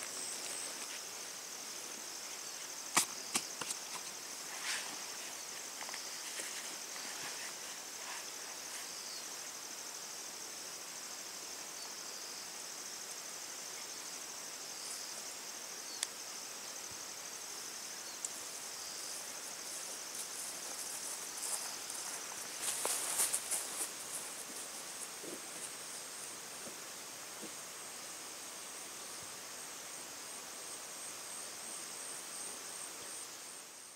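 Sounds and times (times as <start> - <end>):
insects chirring: 0.0 - 33.9
light rustling: 19.6 - 26.3.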